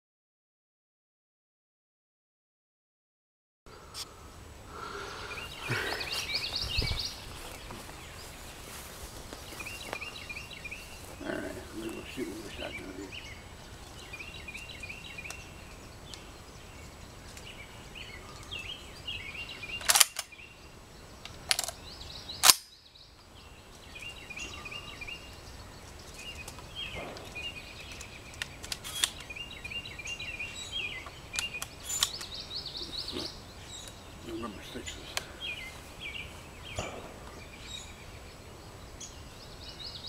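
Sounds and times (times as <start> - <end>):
small birds chirping: 3.7 - 40.0
gun handling metallic clicks: 19.8 - 20.4, 21.2 - 21.8, 22.4 - 22.7, 26.4 - 29.3, 31.3 - 32.3
shotgun shots: 26.9 - 27.4, 36.8 - 37.3.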